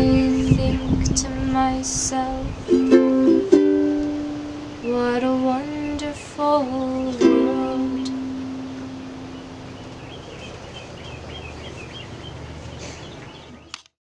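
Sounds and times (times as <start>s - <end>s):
person singing: 0.0s - 3.4s, 4.8s - 8.6s
ukulele chord strummed: 2.7s - 5.5s, 6.8s - 9.5s.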